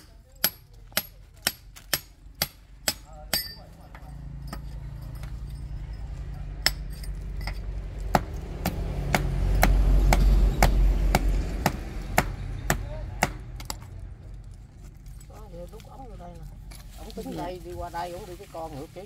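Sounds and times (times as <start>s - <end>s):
hammer striking steel chisel: 0.0s - 4.7s.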